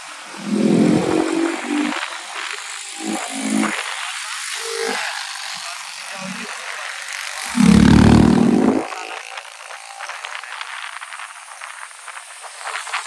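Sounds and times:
wind and road rush: 0:00.2 - 0:02.1
motorcycle engine blast: 0:07.5 - 0:08.8.

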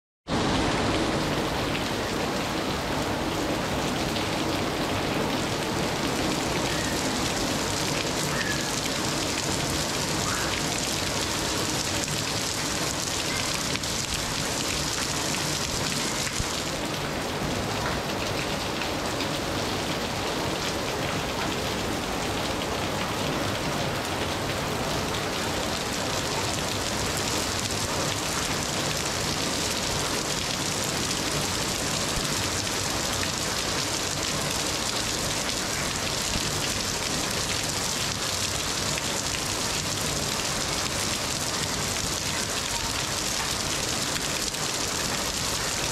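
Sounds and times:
steady rain falling: 0:00.3 - 0:45.9.

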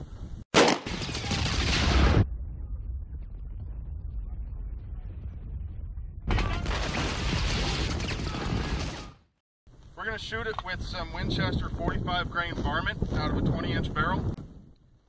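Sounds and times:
low rumble: 0:01.3 - 0:07.8.

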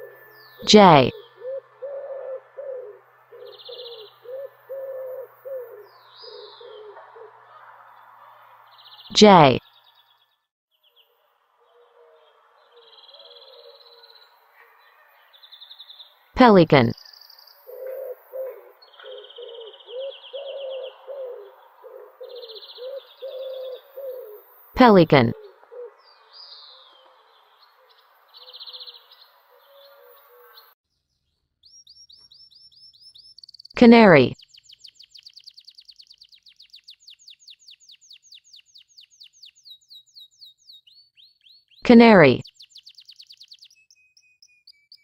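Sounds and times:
high bird trill: 0:00.0 - 0:07.6, 0:11.7 - 0:30.8, 0:31.6 - 0:45.0
bird hooting: 0:00.0 - 0:07.7, 0:11.6 - 0:14.2, 0:17.0 - 0:24.6, 0:25.2 - 0:30.6.

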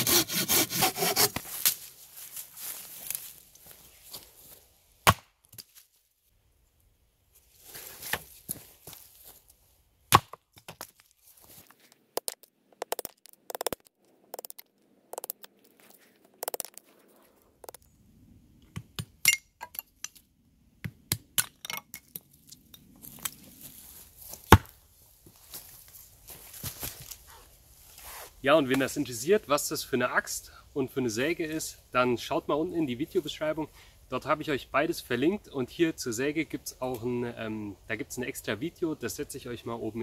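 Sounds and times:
axe chopping wood: 0:05.0 - 0:05.3, 0:10.1 - 0:10.8, 0:24.5 - 0:24.7.

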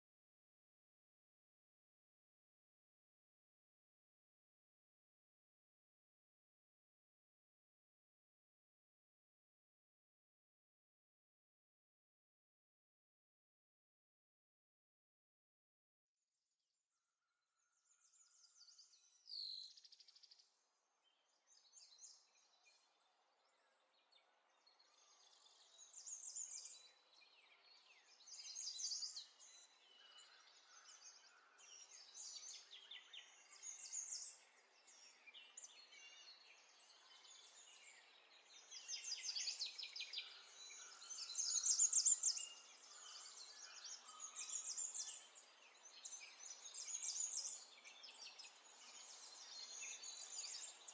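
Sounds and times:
small birds chirping: 0:17.7 - 0:50.9.

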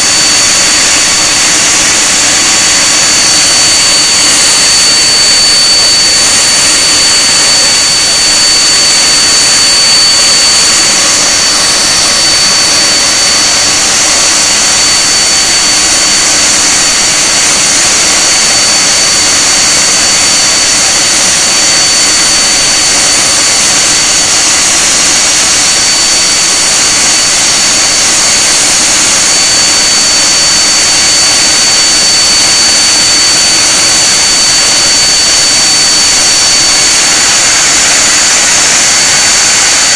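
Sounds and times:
high-pitched turbine whine: 0:00.0 - 0:39.9
jet engines rushing: 0:00.0 - 0:39.9.

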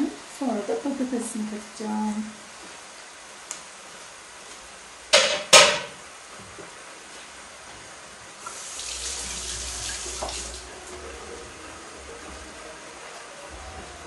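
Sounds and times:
kitchen tap running: 0:08.4 - 0:10.7.

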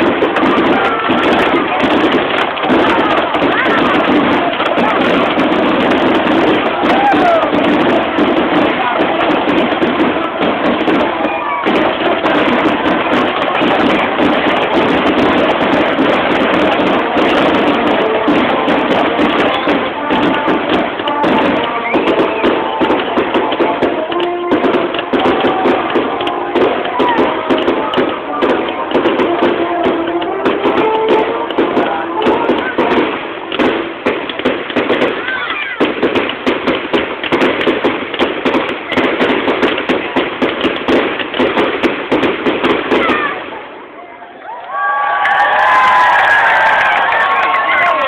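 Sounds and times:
music: 0:00.0 - 0:35.4
fireworks crackling and banging: 0:00.0 - 0:44.1, 0:44.8 - 0:48.0
crowd voices: 0:00.0 - 0:48.0.

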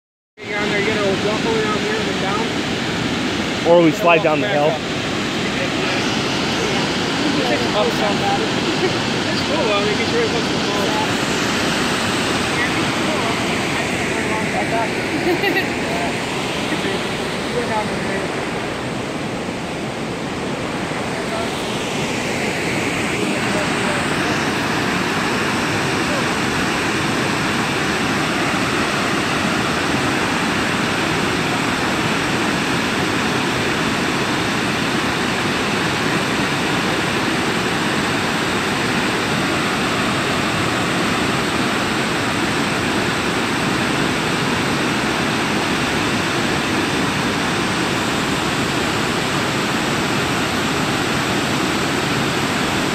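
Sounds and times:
waterfall rushing: 0:00.4 - 0:52.9.

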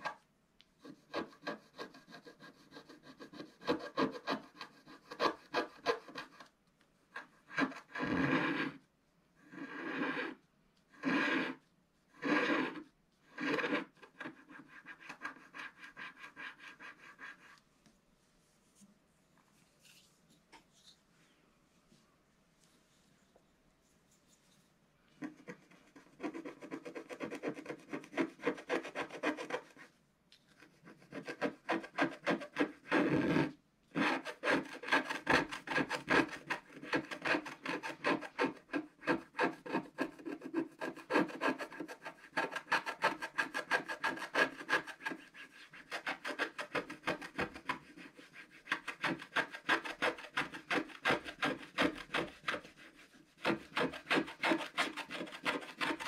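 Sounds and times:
stylus scratching card: 0:25.2 - 0:29.9, 0:30.6 - 0:56.0.

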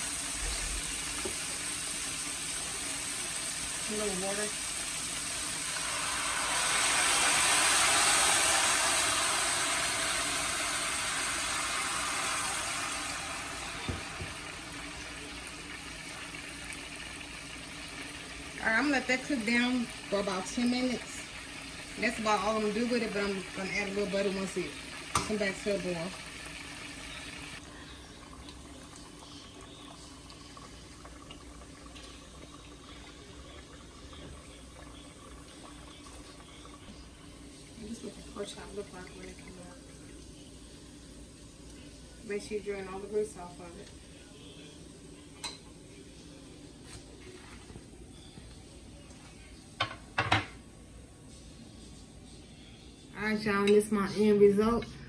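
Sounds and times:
pork chops frying in oil: 0:00.0 - 0:41.2
water sizzling in a hot pan: 0:00.0 - 0:45.7.

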